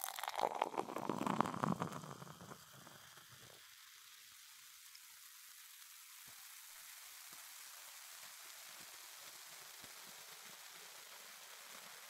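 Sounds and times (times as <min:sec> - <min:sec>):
soda pouring into a glass: 0:00.0 - 0:04.4
carbonation fizzing: 0:00.0 - 0:05.2.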